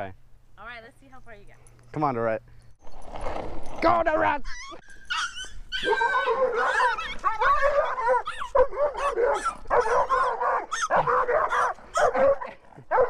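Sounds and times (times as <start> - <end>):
dogs barking and yipping: 4.4 - 13.0.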